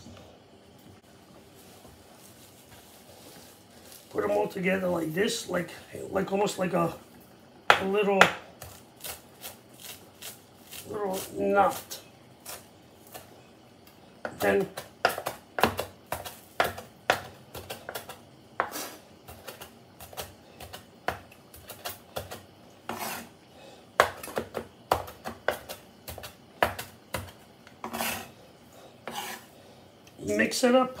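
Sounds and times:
knife chopping on wooden board: 14.2s - 23.3s, 24.0s - 28.2s.

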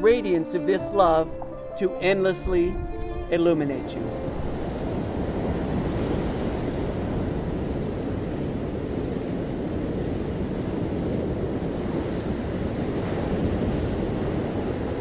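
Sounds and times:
waves breaking on sandy beach: 4.1s - 15.0s.

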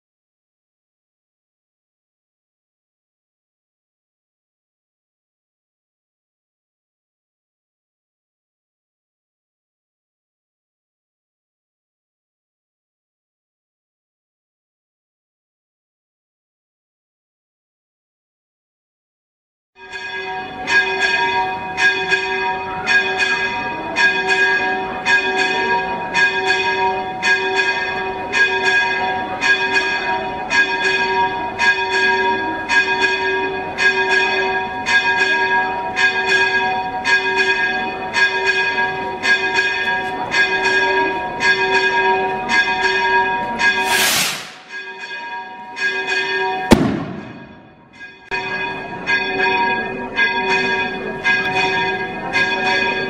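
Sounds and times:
church bell ringing: 19.8s - 53.0s
sharp bang: 43.6s - 45.1s, 46.7s - 47.9s
loud whoosh: 43.7s - 44.9s.

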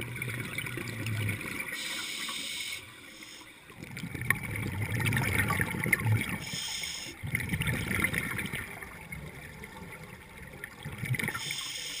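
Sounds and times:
underwater bubbles: 0.0s - 12.0s
thin high hiss: 1.8s - 3.5s, 6.4s - 7.2s.

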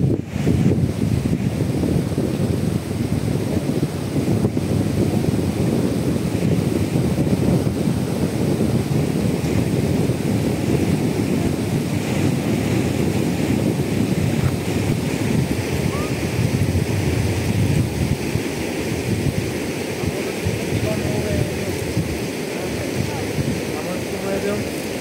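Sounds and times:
wind buffeting microphone: 0.0s - 25.0s
river running over stones: 11.3s - 25.0s.

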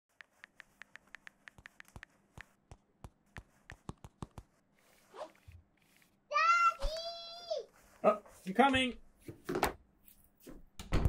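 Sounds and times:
stylus tapping on screen: 0.1s - 4.6s.

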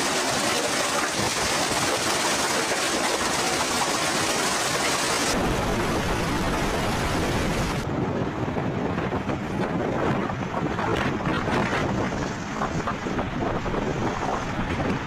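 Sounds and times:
heavy driving rain: 0.0s - 8.0s
wind buffeting microphone: 5.3s - 15.0s.

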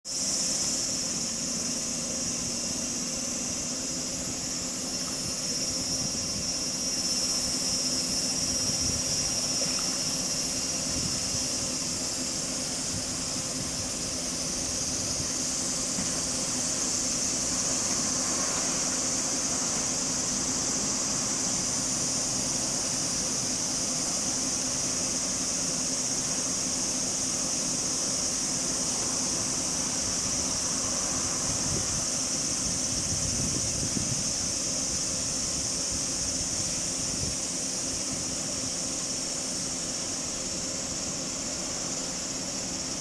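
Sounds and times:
high-pitched hiss: 0.0s - 43.0s.

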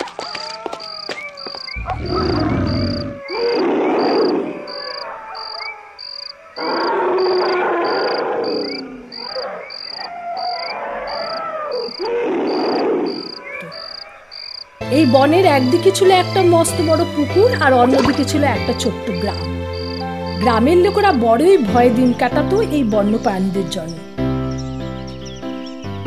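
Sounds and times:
rough animal calls: 0.0s - 14.8s
insect chirping: 0.8s - 14.9s, 17.9s - 21.2s.

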